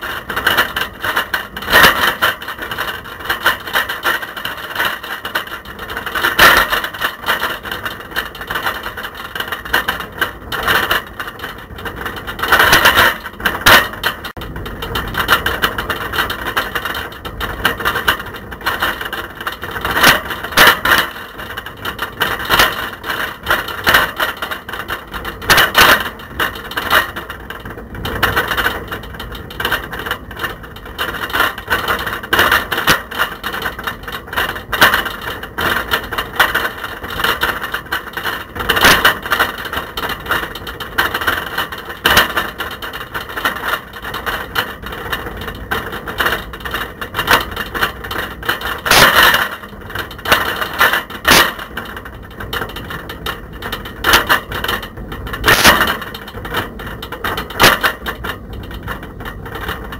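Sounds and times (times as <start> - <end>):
camera rattling in bike basket: 0.0 - 59.9
road noise: 0.0 - 59.9.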